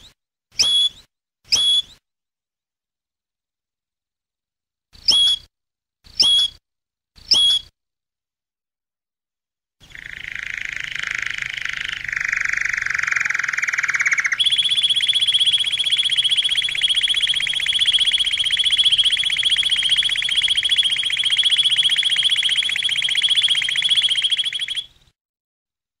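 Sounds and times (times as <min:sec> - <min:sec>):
canary trilling: 0:09.9 - 0:24.9.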